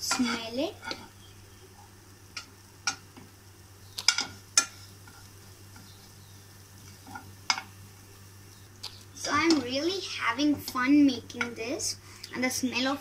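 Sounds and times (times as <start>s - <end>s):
spatula scraping frying pan: 0.0s - 1.2s
faint sizzle: 0.0s - 13.0s.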